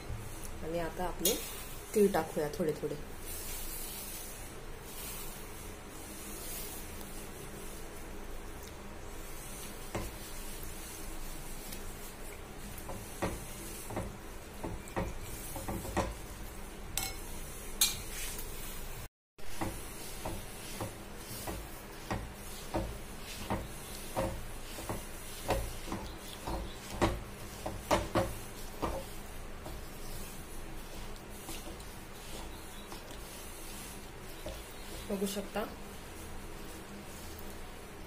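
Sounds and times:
spoon scraping and knocking a pan: 0:09.6 - 0:10.6, 0:11.7 - 0:16.3, 0:16.9 - 0:18.4, 0:19.5 - 0:35.5.

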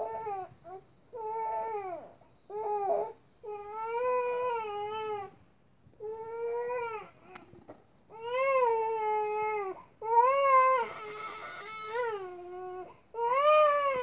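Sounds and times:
baby crying: 0:08.2 - 0:14.0.

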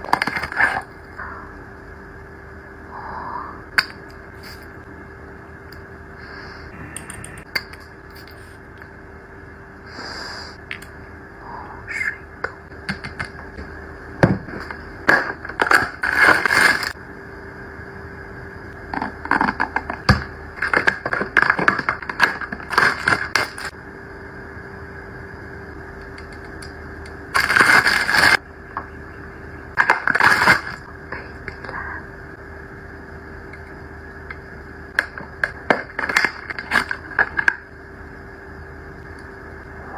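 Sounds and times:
faint steady hum: 0:00.0 - 0:39.9
packaging rustling and scraping: 0:15.6 - 0:17.0, 0:27.3 - 0:28.4, 0:29.9 - 0:30.8.

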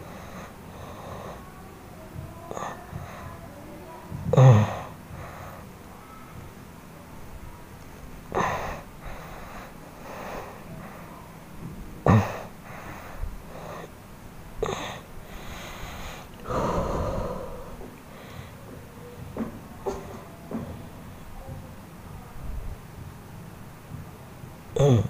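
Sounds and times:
man breathing out heavily: 0:15.3 - 0:18.6.

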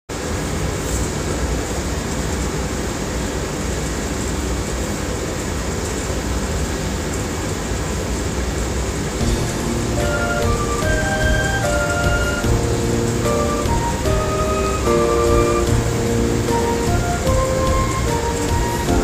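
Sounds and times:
steady rushing noise: 0:08.6 - 0:19.0
karaoke backing track: 0:09.2 - 0:19.0.

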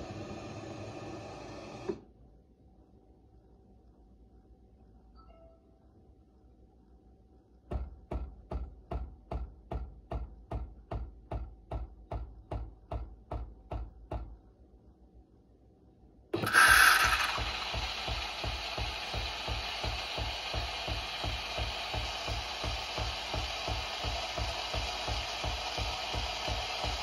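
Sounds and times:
espresso machine pump pulsing: 0:00.0 - 0:02.0, 0:16.4 - 0:27.0
milk frothing hiss: 0:00.0 - 0:02.0, 0:16.4 - 0:27.0.

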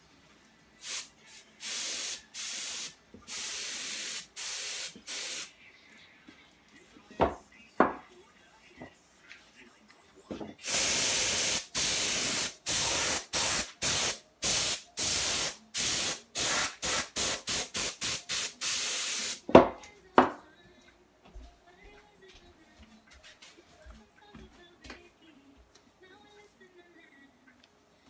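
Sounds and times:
compressed air hissing: 0:00.8 - 0:05.5, 0:10.6 - 0:19.4.

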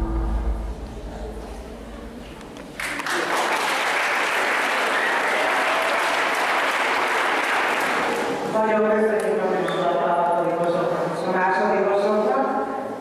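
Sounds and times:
audience applauding: 0:02.7 - 0:08.4.

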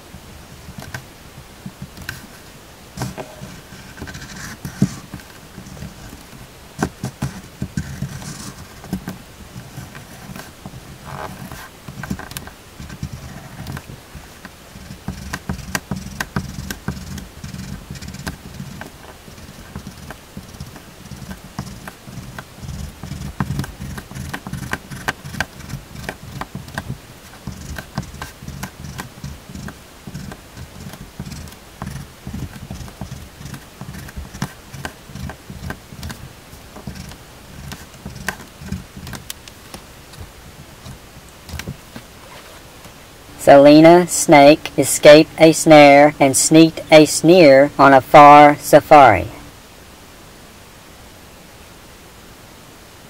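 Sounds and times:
crayon strokes on paper: 0:01.7 - 0:06.2, 0:06.8 - 0:39.3.

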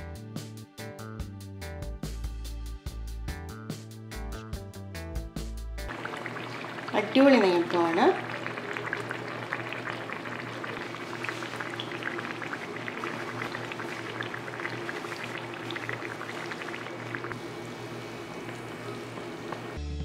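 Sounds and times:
batter deep-frying in oil: 0:05.9 - 0:19.8.

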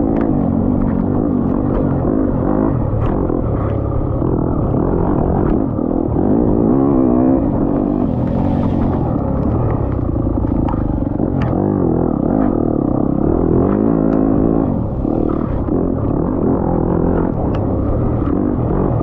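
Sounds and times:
racing engine revving: 0:00.0 - 0:19.0.

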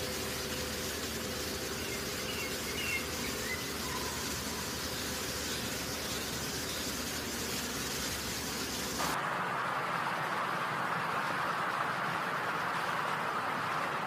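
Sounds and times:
faint high chirps: 0:01.7 - 0:07.0.

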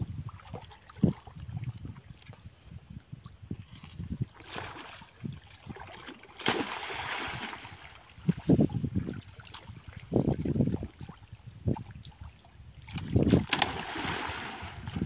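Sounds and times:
river water splashing: 0:04.4 - 0:08.5, 0:12.9 - 0:15.0.

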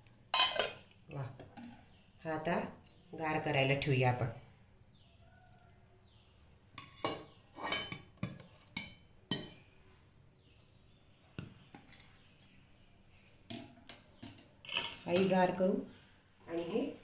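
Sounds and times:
metal kitchenware clinking: 0:00.3 - 0:01.8, 0:06.8 - 0:09.6, 0:13.5 - 0:15.4.

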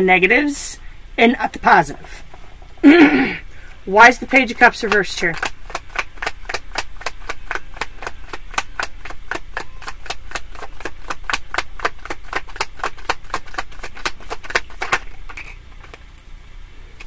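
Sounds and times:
cards being shuffled: 0:04.6 - 0:16.1.

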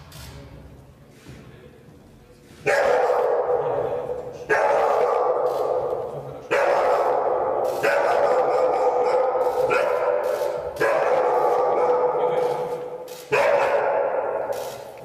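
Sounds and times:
dog barking loudly: 0:02.6 - 0:03.7, 0:04.4 - 0:12.7, 0:13.3 - 0:14.5.

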